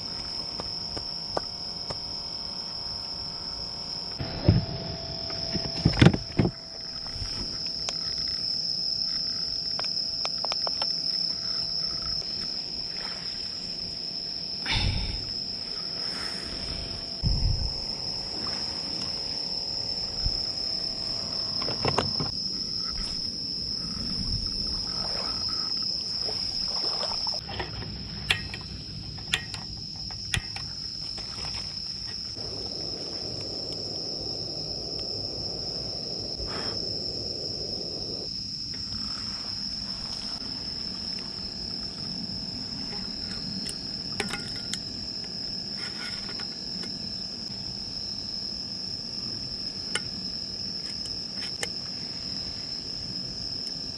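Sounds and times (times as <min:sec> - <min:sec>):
insects chirring: 0:00.0 - 0:53.9
handling knocks and clicks: 0:27.4 - 0:31.3.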